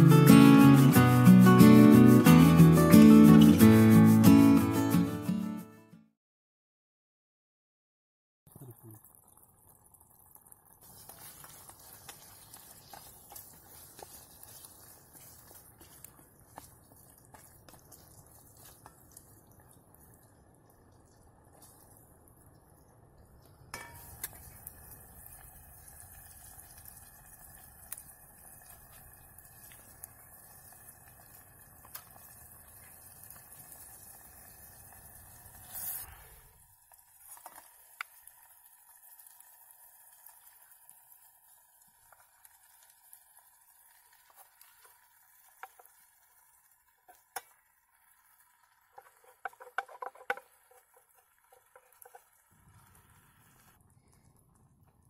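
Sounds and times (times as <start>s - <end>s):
stove hiss: 23.8s - 55.0s
wooden spoon scraping pot: 48.9s - 52.3s.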